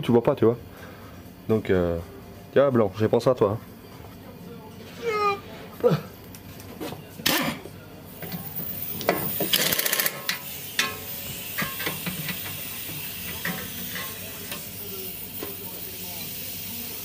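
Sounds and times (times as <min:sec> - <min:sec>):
air ratchet rattling: 0:08.6 - 0:16.9.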